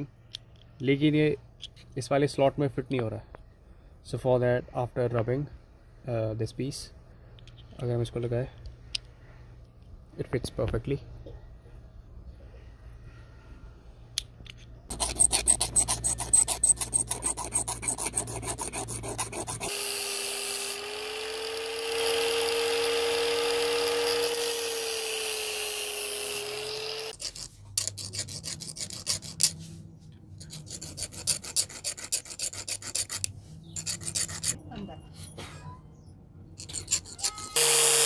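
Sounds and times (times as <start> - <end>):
hand file rasping on metal: 14.9 - 19.9, 21.9 - 29.6, 30.4 - 34.6, 36.6 - 37.9
angle grinder whining: 19.6 - 27.2, 36.8 - 38.0.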